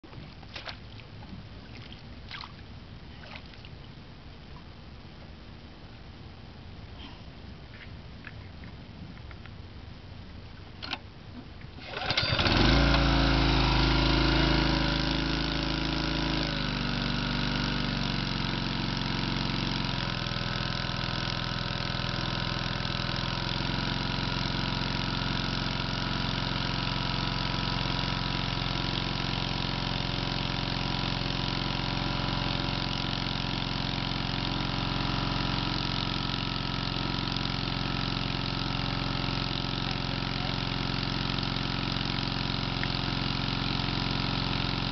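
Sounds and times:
small gasoline engine running: 11.8s - 44.9s.

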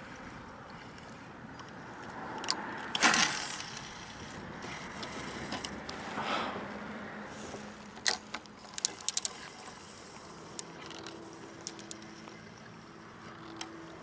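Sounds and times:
fishing reel clicks and knocks: 0.7s - 6.0s, 7.8s - 14.0s
rod swing whoosh: 5.4s - 6.8s.

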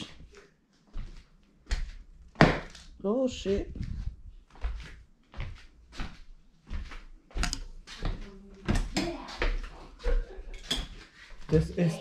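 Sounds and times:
footsteps on plank floor: 0.9s - 2.9s, 3.5s - 10.4s.

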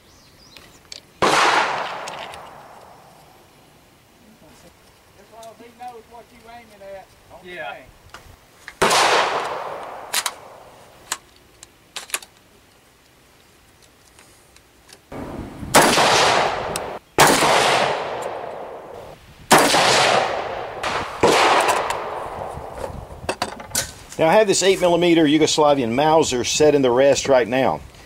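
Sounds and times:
rifle shots echoing: 1.2s - 3.1s, 8.8s - 10.8s, 15.1s - 22.7s
rifle handling clicks: 1.9s - 3.3s, 9.4s - 10.4s, 11.0s - 15.1s.

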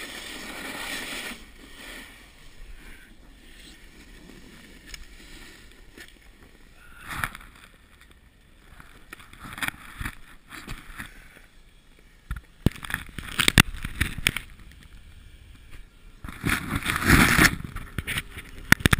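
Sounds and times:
snowboard scraping over snow: 0.0s - 6.6s.

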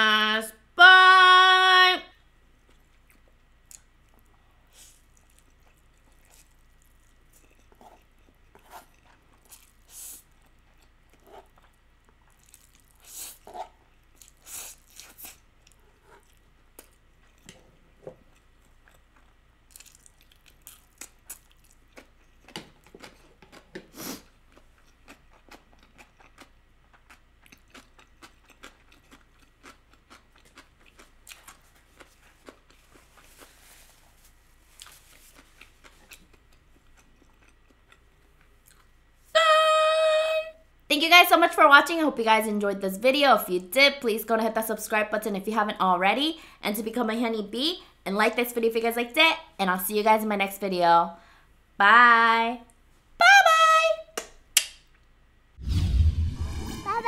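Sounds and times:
person chewing noodles: 2.5s - 39.0s.

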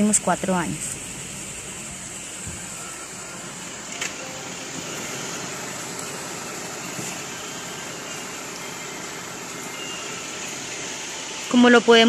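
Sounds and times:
vehicle noise inside car: 0.0s - 12.0s.

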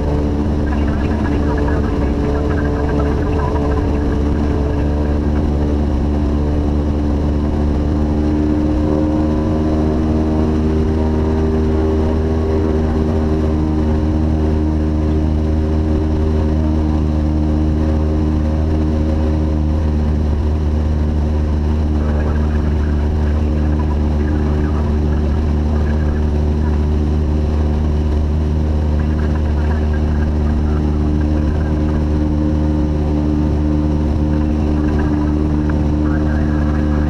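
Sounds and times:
aircraft engine and propeller droning: 0.0s - 37.0s.

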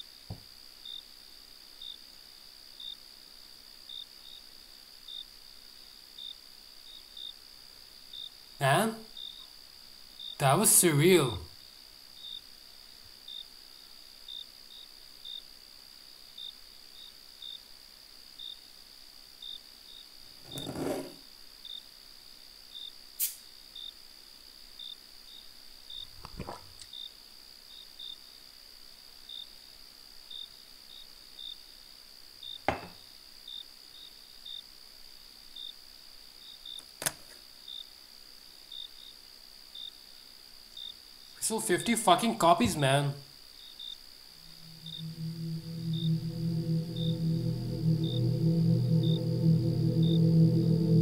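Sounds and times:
crickets chirping: 0.0s - 26.3s, 37.6s - 51.0s.

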